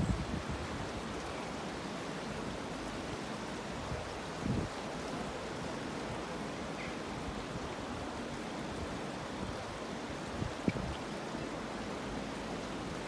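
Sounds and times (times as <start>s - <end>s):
floodwater rushing: 0.0s - 13.0s.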